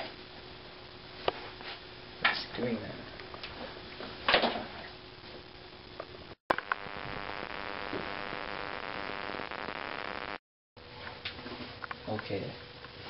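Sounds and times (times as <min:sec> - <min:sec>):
steady electrical buzz: 0:05.0 - 0:11.0
click: 0:06.5 - 0:08.2.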